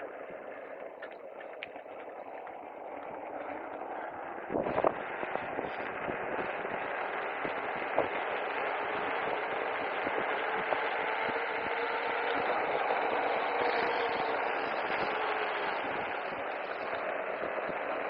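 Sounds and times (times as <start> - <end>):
faint steady whine: 0.0 - 18.0
wind and tyre noise: 0.0 - 18.0
small ticks: 0.6 - 3.9.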